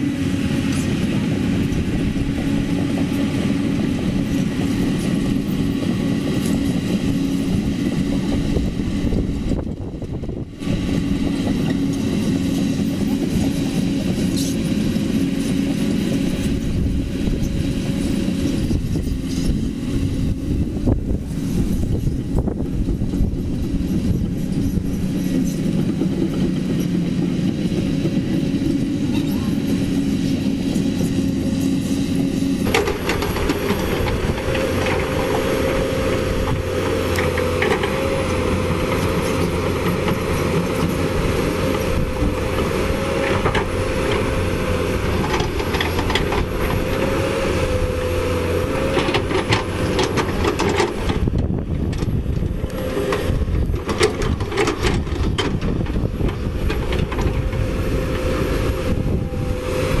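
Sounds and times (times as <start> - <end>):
diesel excavator engine whining: 0.0 - 60.0.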